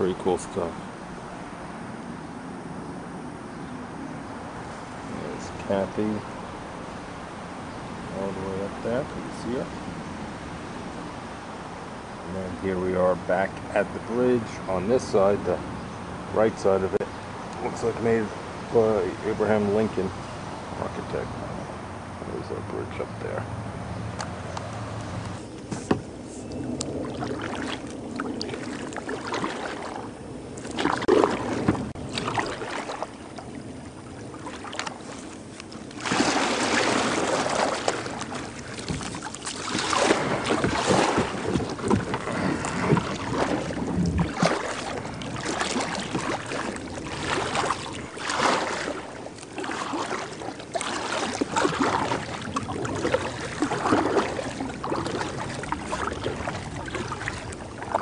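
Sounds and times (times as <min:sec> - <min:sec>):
paddle strokes splashing in water: 0:24.6 - 0:58.0.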